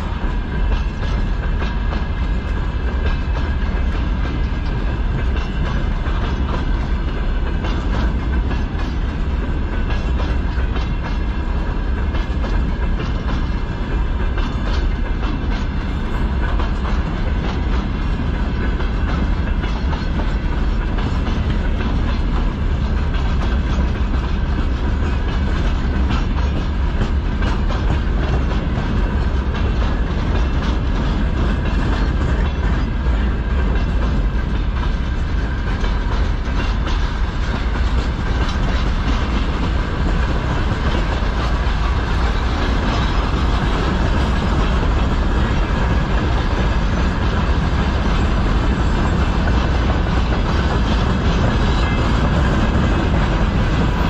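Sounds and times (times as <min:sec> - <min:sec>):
heavy train rumble: 0:00.0 - 0:54.0
steel wheels clattering over rail joints: 0:00.0 - 0:54.0.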